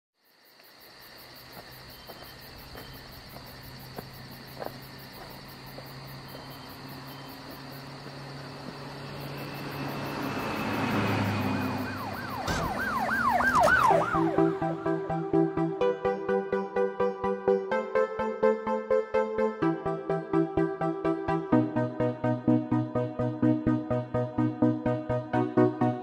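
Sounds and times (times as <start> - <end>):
siren-like wailing sweeps: 6.5 - 15.5.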